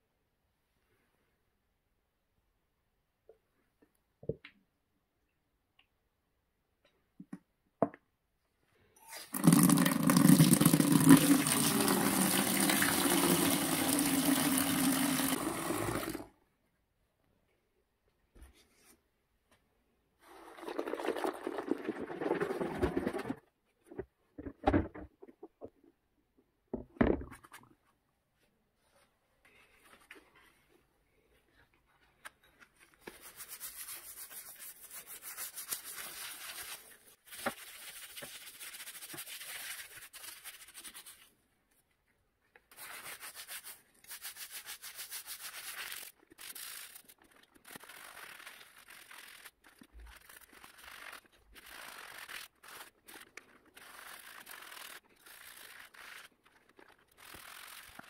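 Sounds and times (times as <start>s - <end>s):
liquid sloshing: 20.3s - 23.4s
stiff brush scrubbing: 33.1s - 41.2s, 42.7s - 58.0s.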